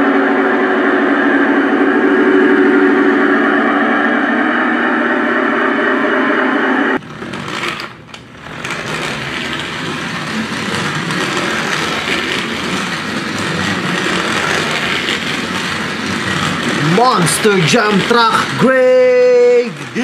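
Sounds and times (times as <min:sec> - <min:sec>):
loud toy engine noise: 0:07.0 - 0:20.0
toy truck electric motor whirring: 0:07.0 - 0:20.0.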